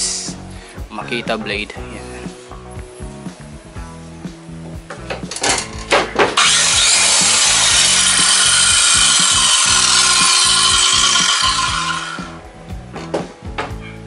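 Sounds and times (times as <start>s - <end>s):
circular saw cutting plywood: 6.3s - 12.4s.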